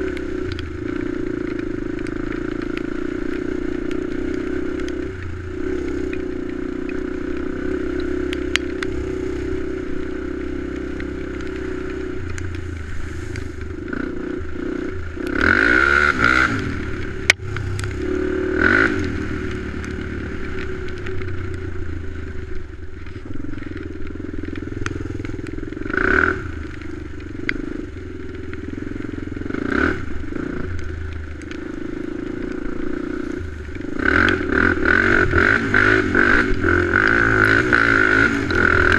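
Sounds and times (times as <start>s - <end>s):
atv engine revving: 0.0s - 38.9s.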